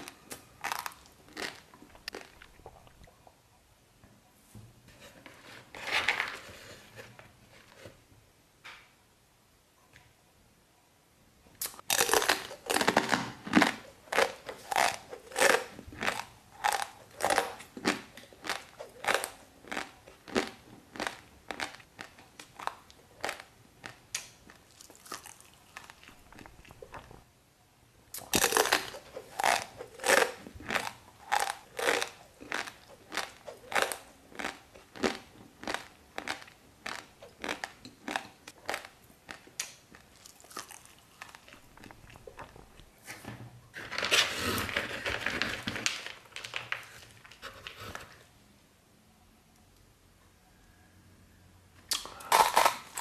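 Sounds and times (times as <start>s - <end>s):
crunchy chewing of dry noodles: 0.0s - 3.2s, 11.6s - 27.2s, 28.1s - 43.0s, 51.9s - 53.0s.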